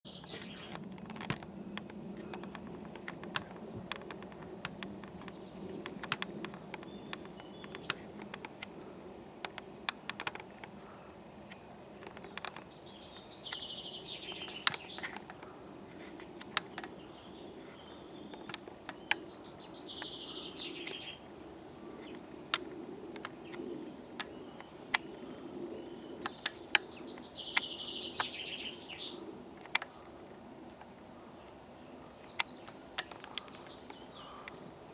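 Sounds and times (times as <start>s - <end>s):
songbird singing: 0.0s - 34.9s
sharp clicks: 0.1s - 10.8s, 11.4s - 15.5s, 18.3s - 21.2s, 21.9s - 25.1s, 32.2s - 34.6s.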